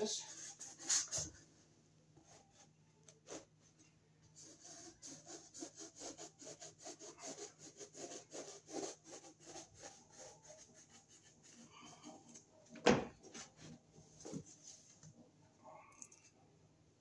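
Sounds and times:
knife sawing through ceiling tile: 4.4s - 12.4s.

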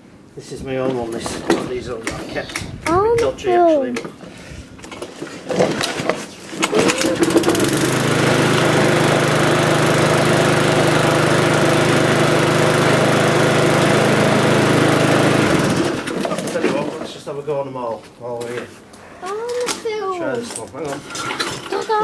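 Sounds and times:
lawnmower engine starting: 4.9s - 17.1s.

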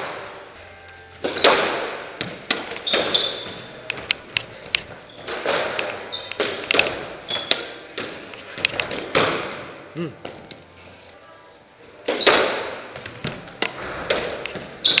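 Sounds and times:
shoes squeaking on floor: 0.0s - 15.0s
squash ball hits echoing: 1.2s - 9.6s, 12.1s - 15.0s.

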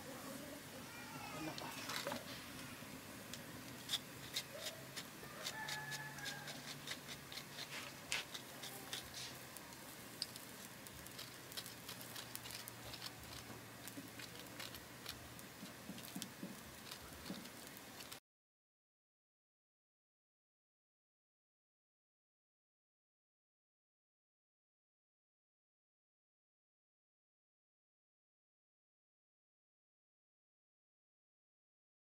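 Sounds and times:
wood fire crackling: 0.2s - 18.2s
sharp pops and clicks: 10.2s - 18.2s.

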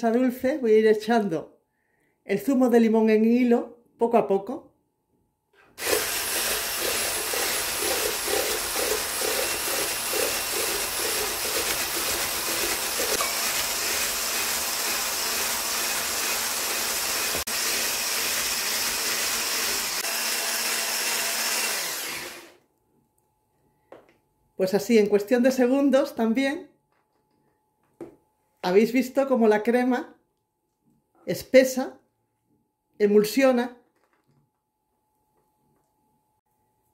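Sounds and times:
electric blender whisking: 5.8s - 22.6s.

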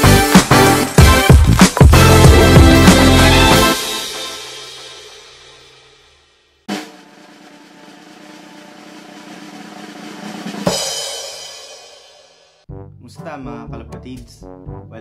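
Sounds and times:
intro music: 0.0s - 5.8s, 12.7s - 15.0s.

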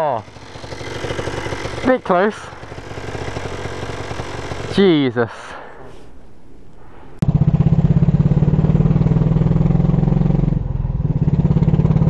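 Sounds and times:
motorcycle engine pulsing: 0.0s - 4.8s, 7.2s - 12.0s.

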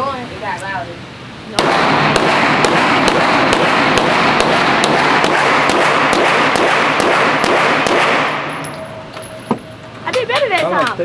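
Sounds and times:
handgun shots: 1.6s - 8.8s
echoing gunfire din: 1.6s - 9.0s.

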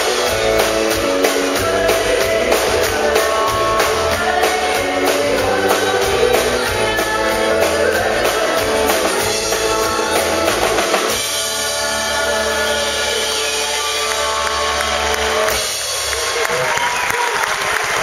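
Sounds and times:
bass guitar: 0.0s - 16.6s
drum kit: 0.0s - 18.0s
woman singing: 0.1s - 14.4s.

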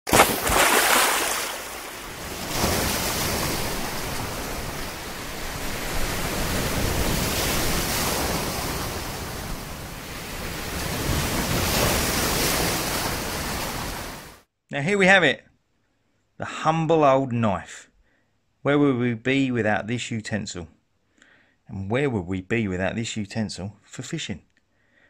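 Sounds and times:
sea surf washing ashore: 0.1s - 14.4s.

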